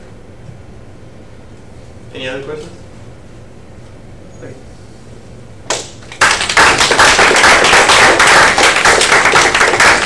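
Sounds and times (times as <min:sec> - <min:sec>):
audience applauding: 0:05.7 - 0:10.0.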